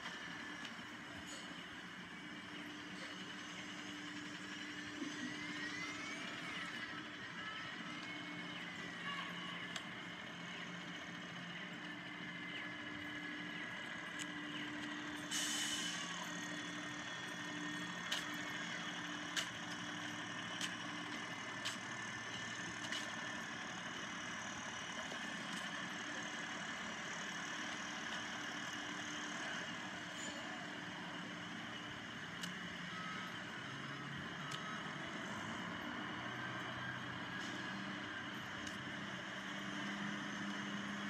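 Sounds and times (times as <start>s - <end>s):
bus engine idling: 0.0s - 41.0s
air brake hiss: 15.2s - 16.2s.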